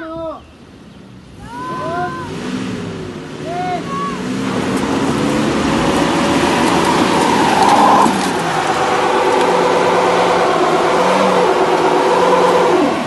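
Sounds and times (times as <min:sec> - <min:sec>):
pickup engines revving hard: 0:00.7 - 0:13.0
tyres spinning on loose dirt: 0:03.4 - 0:13.0.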